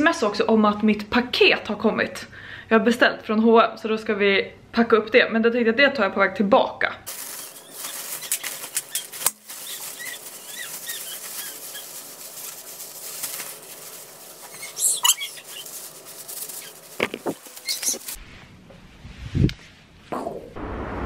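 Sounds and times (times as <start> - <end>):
jacket rustling and crinkling: 7.1 - 18.2.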